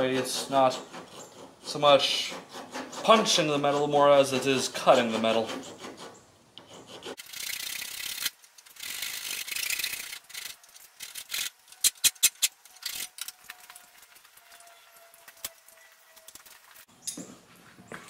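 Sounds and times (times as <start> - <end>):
file rasping on steel: 0.0 - 7.3
sharp metallic clicks and knocks: 6.6 - 13.8.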